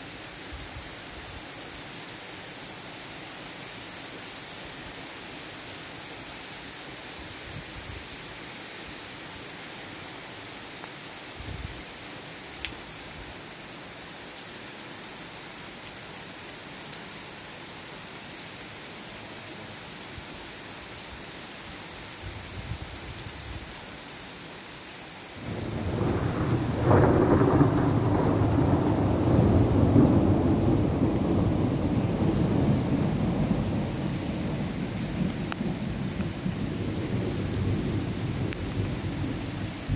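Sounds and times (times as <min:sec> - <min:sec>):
steady rain falling: 0:00.0 - 0:39.9
thunder crack and rumble: 0:25.4 - 0:39.9.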